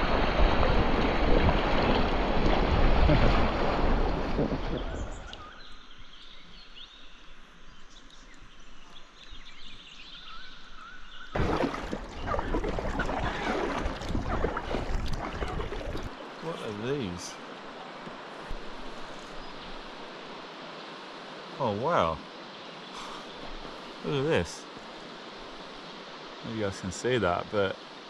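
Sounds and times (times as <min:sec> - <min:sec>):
whitewater rushing: 0:00.0 - 0:05.3, 0:11.4 - 0:19.0, 0:23.0 - 0:28.0
paddle strokes splashing: 0:00.0 - 0:05.5, 0:11.4 - 0:20.4.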